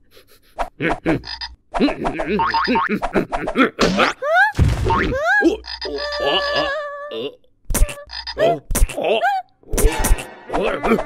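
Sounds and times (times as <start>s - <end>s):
cartoon frog croaking: 4.9s - 9.2s.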